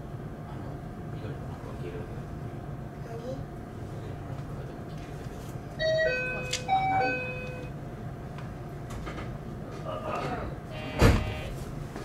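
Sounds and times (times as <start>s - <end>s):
electronic door warning chime: 5.8s - 7.7s, 10.8s - 11.5s.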